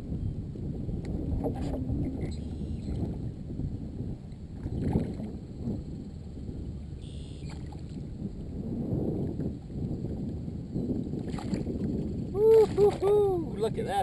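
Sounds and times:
wind buffeting microphone: 0:00.0 - 0:14.0
water sloshing against kayak: 0:11.0 - 0:14.0.

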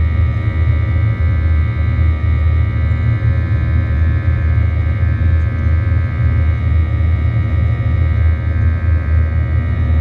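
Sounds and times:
high fan whine: 0:00.0 - 0:10.0
jet engine rumble: 0:00.0 - 0:10.0.

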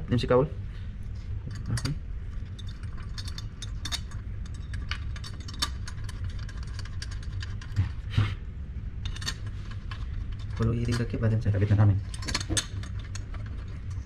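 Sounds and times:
low machine hum: 0:00.0 - 0:14.0
metal parts clicking: 0:01.5 - 0:07.8, 0:09.0 - 0:11.4, 0:12.0 - 0:14.0.

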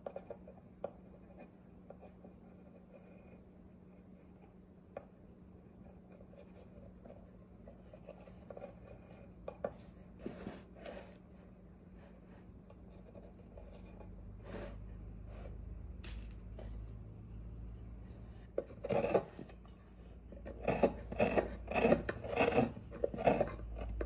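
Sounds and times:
pencil scratching on wood: 0:00.0 - 0:03.4, 0:05.8 - 0:11.2, 0:12.0 - 0:15.6, 0:17.6 - 0:24.0
low hum: 0:11.3 - 0:18.6.

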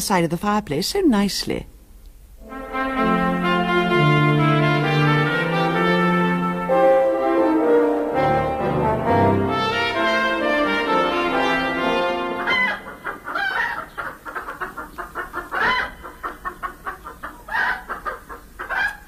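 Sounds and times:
musical phrase: 0:02.4 - 0:13.4
hens clucking: 0:12.2 - 0:19.0.

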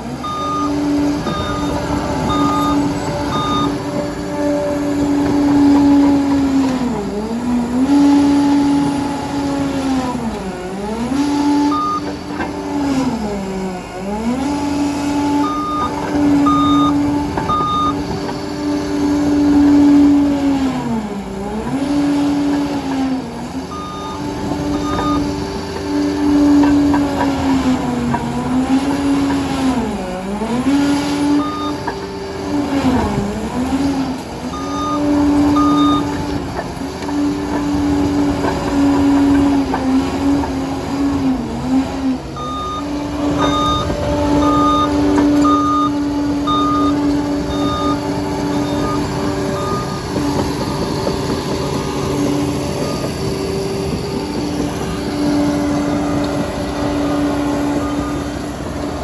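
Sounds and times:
bulldozer engine whine: 0:00.0 - 0:59.0
reversing alarm beeping: 0:00.2 - 0:06.3, 0:11.4 - 0:12.3, 0:14.0 - 0:18.5, 0:23.6 - 0:27.0, 0:30.8 - 0:33.0, 0:33.6 - 0:36.4, 0:42.3 - 0:58.6.

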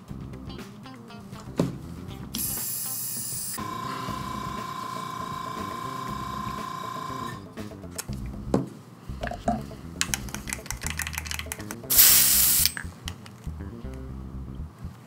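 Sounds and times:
airbrush hiss: 0:02.4 - 0:03.6, 0:11.9 - 0:12.8
paint stirring clicks and taps: 0:09.2 - 0:11.9.

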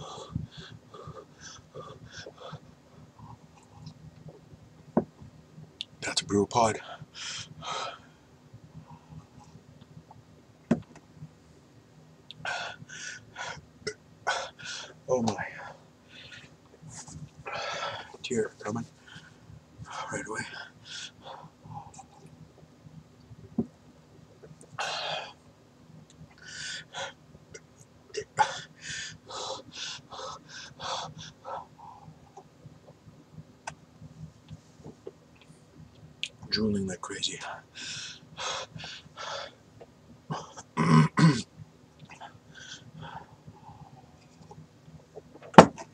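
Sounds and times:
man breathing hissing breaths: 0:06.8 - 0:08.3, 0:12.4 - 0:13.6, 0:26.4 - 0:27.2, 0:28.4 - 0:32.2, 0:37.6 - 0:39.6.

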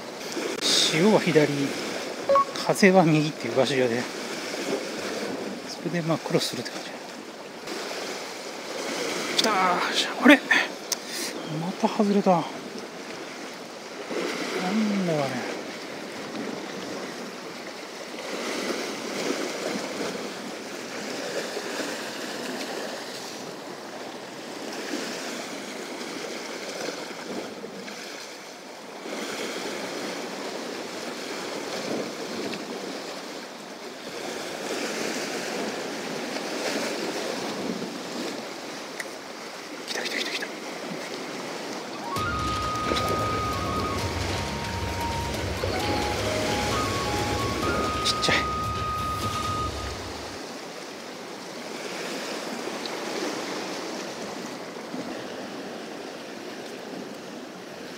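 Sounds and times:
sea waves against rocks: 0:00.0 - 0:57.9
music jingle: 0:02.3 - 0:02.8, 0:42.0 - 0:50.4.

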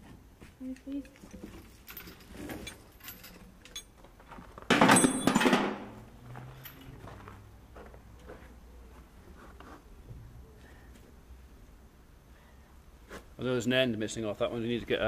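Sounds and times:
steel chains clinking: 0:00.7 - 0:04.0, 0:04.7 - 0:07.0.

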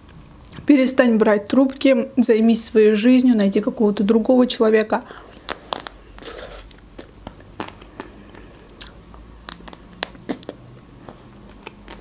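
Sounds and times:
soft chewing and mouth sounds: 0:05.2 - 0:12.0.

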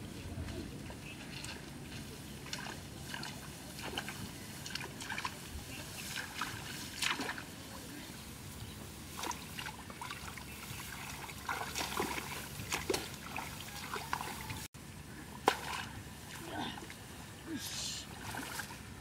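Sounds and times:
shallow water splashing: 0:01.2 - 0:07.6, 0:09.1 - 0:14.7, 0:18.0 - 0:19.0.

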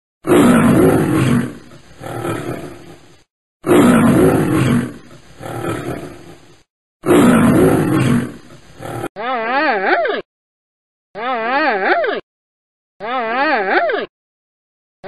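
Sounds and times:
lion roaring: 0:00.2 - 0:09.1.

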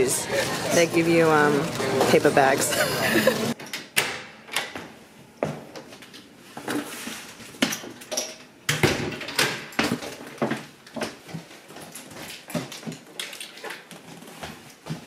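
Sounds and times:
door and box knocks and thuds: 0:08.7 - 0:10.0.

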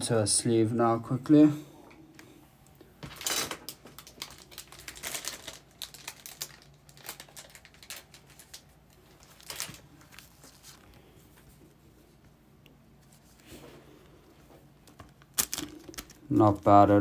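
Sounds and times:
crinkly card bursts: 0:03.0 - 0:11.0, 0:14.9 - 0:16.7
trading cards rustling and clicking: 0:03.0 - 0:11.0, 0:14.8 - 0:16.7.

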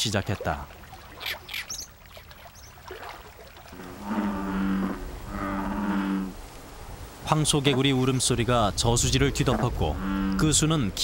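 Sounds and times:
bullfrogs calling: 0:01.0 - 0:02.8, 0:03.7 - 0:06.4, 0:09.3 - 0:10.6.

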